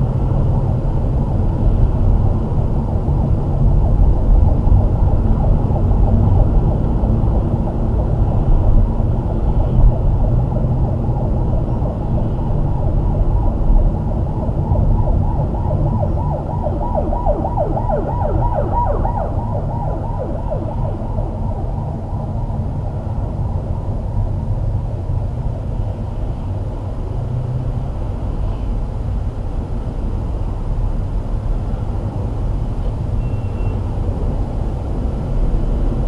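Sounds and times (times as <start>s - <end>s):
car driving low rumble: 0.0s - 36.0s
warbling siren-like tone: 12.6s - 23.7s.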